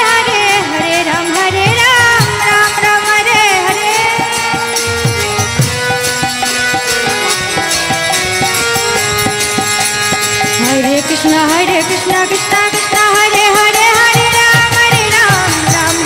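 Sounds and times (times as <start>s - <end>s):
jingling hand percussion: 0.0s - 16.0s
person singing: 10.6s - 16.0s.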